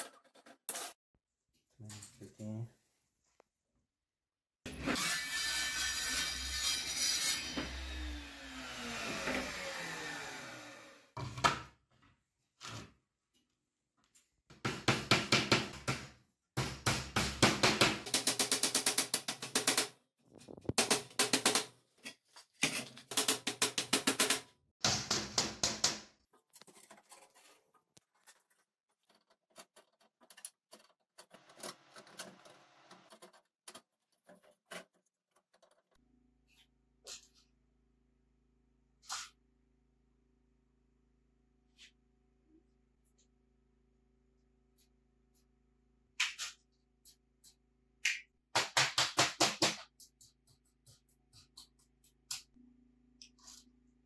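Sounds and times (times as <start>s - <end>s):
circular saw cutting wood: 4.7s - 11.2s.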